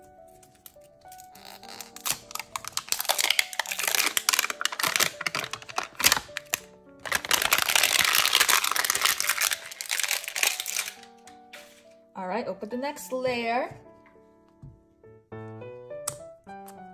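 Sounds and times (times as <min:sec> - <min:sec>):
plastic packaging tearing and rustling: 0:00.0 - 0:11.9
background music: 0:00.0 - 0:16.9.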